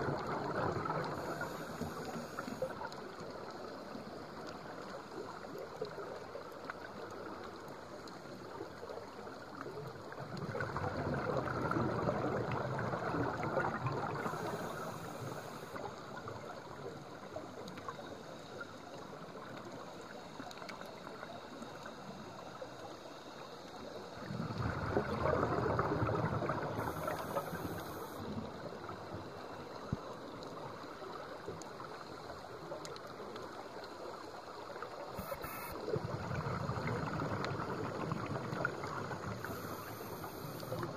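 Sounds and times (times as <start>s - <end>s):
underwater hiss: 0.2s - 2.9s, 12.0s - 16.5s, 22.0s - 30.2s, 35.1s - 40.9s.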